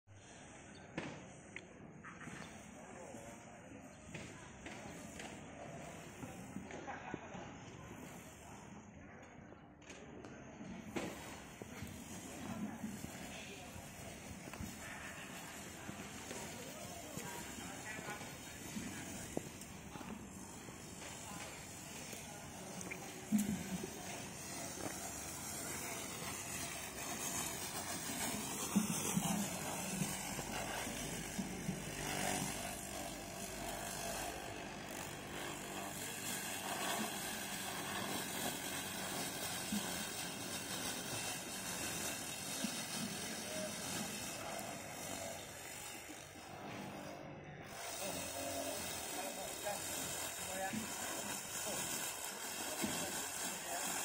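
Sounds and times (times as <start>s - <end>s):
electric lawn mower cutting grass: 10.9s - 54.0s.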